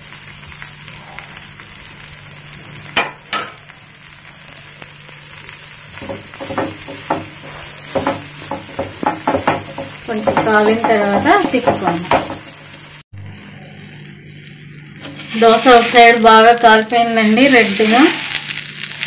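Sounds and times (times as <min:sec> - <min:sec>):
dosa sizzling on hot pan: 0:00.0 - 0:19.0
spatula scraping pan: 0:06.0 - 0:12.9.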